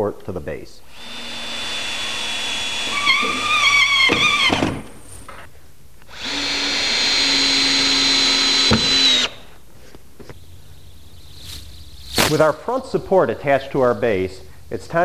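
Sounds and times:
cordless drill driving screws: 0.9s - 4.9s, 6.1s - 9.4s
sharp click of drill: 8.4s - 9.4s.

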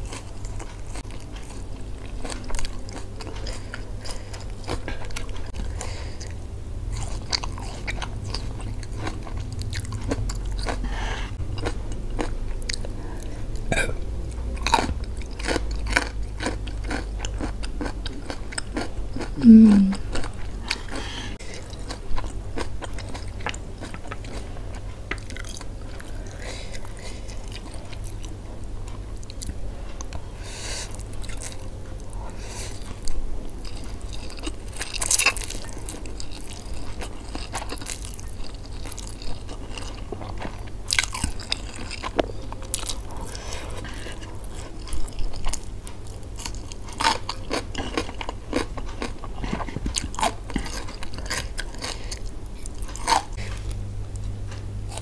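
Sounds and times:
steady low hum: 0.0s - 55.0s
chewing and lip smacks: 7.0s - 13.7s.

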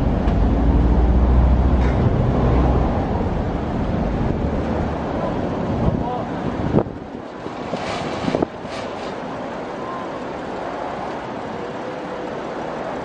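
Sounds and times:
engine running at low revs: 0.0s - 7.4s.

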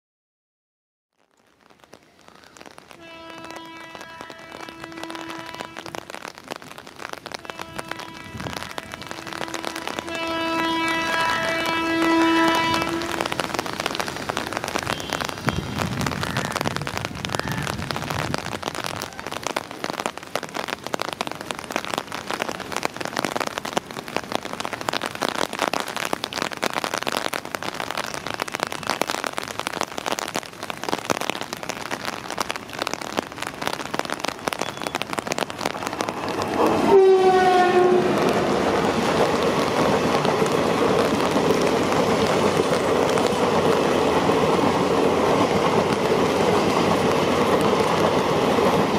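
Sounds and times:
rain hissing: 1.2s - 48.9s
train horn: 3.0s - 6.2s, 7.3s - 13.5s, 36.5s - 38.6s
train wheels rumbling on rails: 3.0s - 18.8s, 34.3s - 48.9s.

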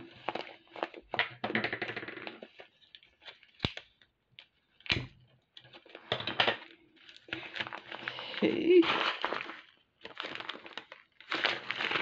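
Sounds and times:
plastic bag crinkling: 0.0s - 1.2s, 5.7s - 12.0s.

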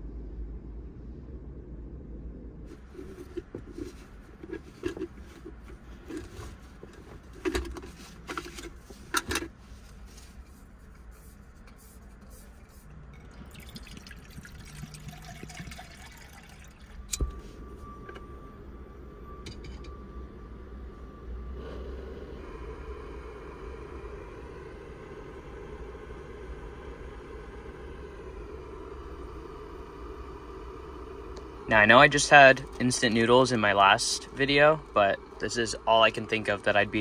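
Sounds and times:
faint steady tone: 0.0s - 37.0s
water poured into a pot: 13.2s - 17.0s.

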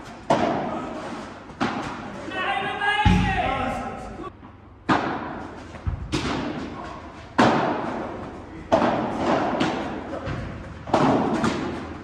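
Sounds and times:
padel ball hits echoing: 3.0s - 4.0s.

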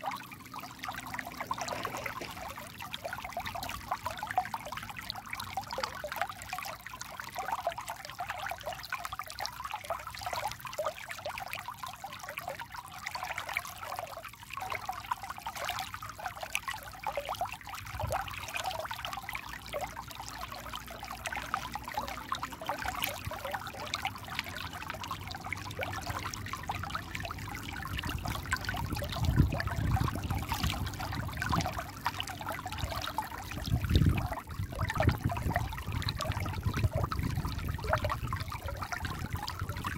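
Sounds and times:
stream babbling over rocks: 0.0s - 39.9s.

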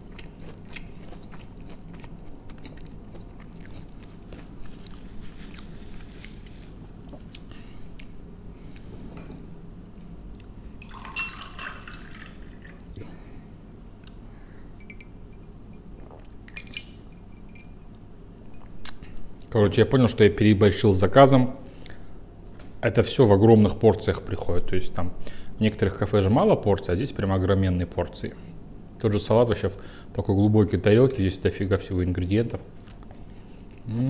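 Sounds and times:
person chewing food: 0.0s - 6.4s, 7.0s - 8.9s.

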